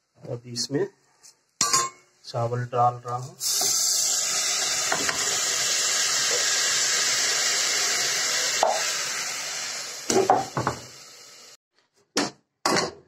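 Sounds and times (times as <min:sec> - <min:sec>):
metal pan clattering: 0:01.6 - 0:02.0
rice sizzling in hot oil: 0:03.4 - 0:11.6.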